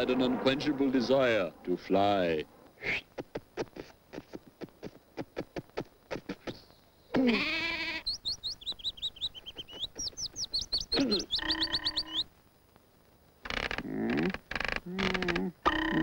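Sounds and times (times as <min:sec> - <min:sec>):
sheep bleating: 0:07.1 - 0:08.1
high bird chirping: 0:07.8 - 0:12.3.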